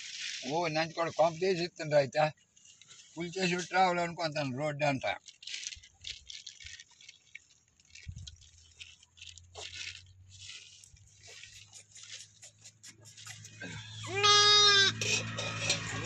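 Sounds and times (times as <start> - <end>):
hooves scuffing on stony ground: 7.4 - 14.8
lamb bleating: 13.6 - 15.1.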